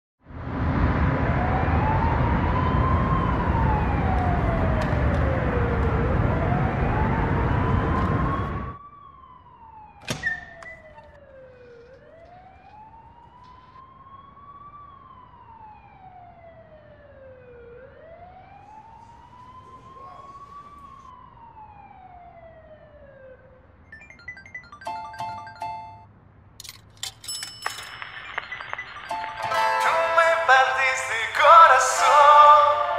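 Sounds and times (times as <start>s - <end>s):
emergency vehicle siren wailing: 0.5s - 26.1s, 27.7s - 32.9s.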